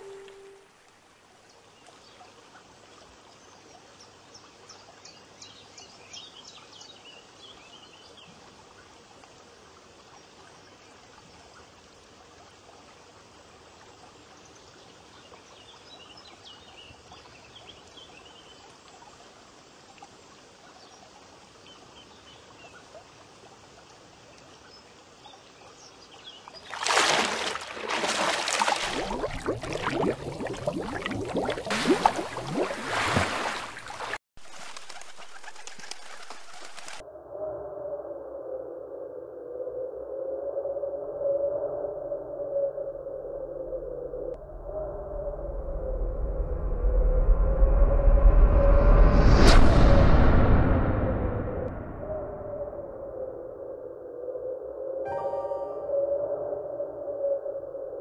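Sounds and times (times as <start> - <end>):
faint trickling stream: 0.0 - 37.0
loud rush of water: 26.6 - 34.2
bird chirps: 55.1 - 56.6.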